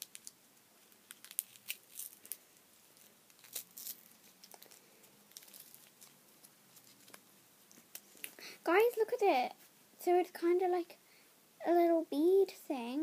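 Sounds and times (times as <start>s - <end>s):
plastic wrapper crinkling: 0.0s - 8.4s.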